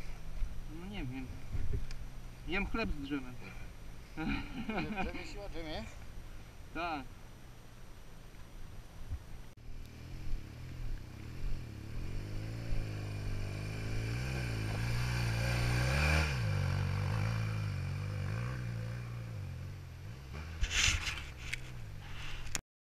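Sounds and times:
motorcycle engine revving: 9.6s - 20.8s
short crackling noises: 20.4s - 22.6s.

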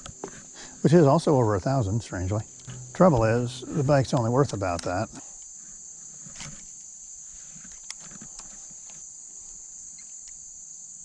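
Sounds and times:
insects trilling: 0.0s - 11.0s.

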